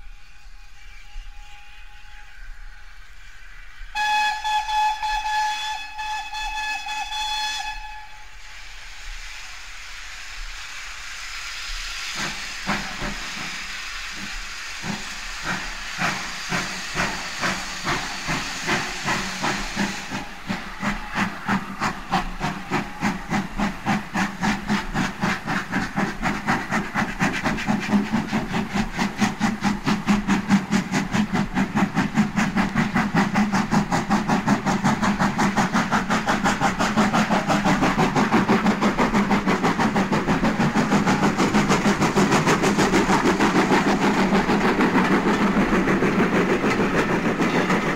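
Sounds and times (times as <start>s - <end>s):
steam hiss: 0.0s - 47.9s
steam locomotive exhaust beats: 0.0s - 47.9s.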